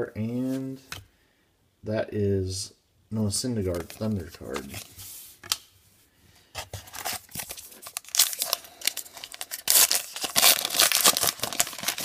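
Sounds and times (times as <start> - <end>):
paper wrapper tearing and crinkling: 6.9 - 12.0.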